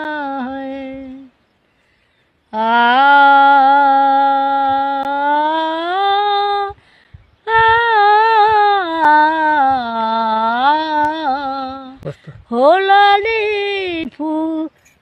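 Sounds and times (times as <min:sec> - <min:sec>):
woman humming: 0:07.5 - 0:13.0.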